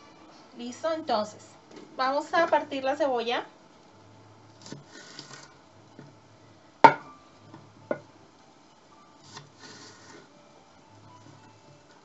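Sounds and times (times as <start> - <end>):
knife knocking on wooden board: 6.8 - 7.1.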